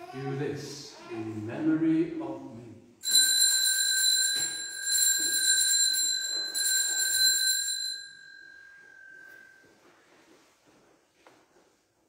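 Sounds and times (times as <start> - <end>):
altar bells ringing: 3.0 - 9.8.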